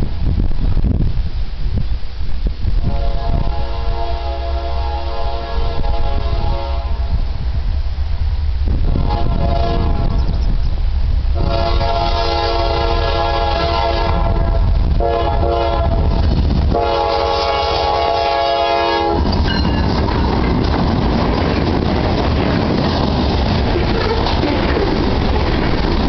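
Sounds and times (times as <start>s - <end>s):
train wheels rumbling on rails: 0.0s - 26.0s
locomotive air horn blasts: 2.8s - 7.4s, 8.8s - 10.5s, 11.4s - 19.3s.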